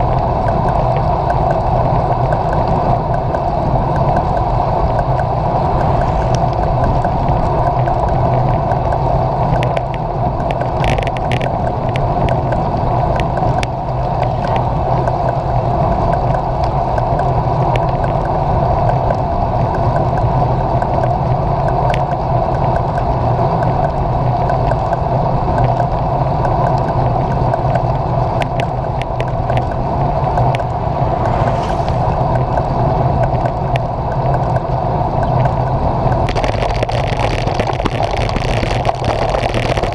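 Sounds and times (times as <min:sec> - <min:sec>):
small clicks and rattles: 0:00.0 - 0:15.5, 0:16.1 - 0:30.8, 0:32.4 - 0:39.9
bike tyres rolling on asphalt: 0:00.0 - 0:39.9
wind rushing: 0:02.6 - 0:09.4, 0:29.5 - 0:34.0.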